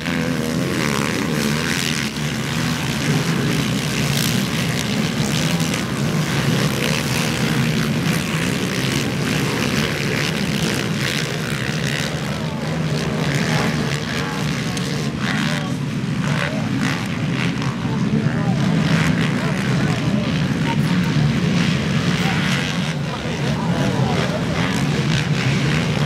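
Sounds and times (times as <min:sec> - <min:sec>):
quad bike engines buzzing: 0:00.0 - 0:26.0.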